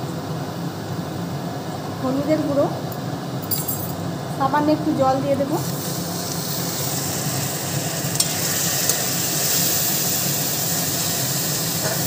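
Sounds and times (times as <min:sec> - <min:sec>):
spices sizzling in hot oil: 0:05.0 - 0:12.0.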